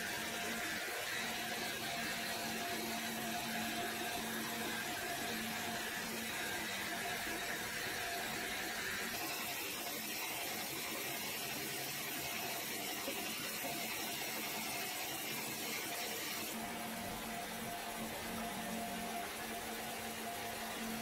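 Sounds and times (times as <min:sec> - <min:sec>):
faint machine whine: 0:00.0 - 0:21.0
sawmill machinery running: 0:00.0 - 0:21.0.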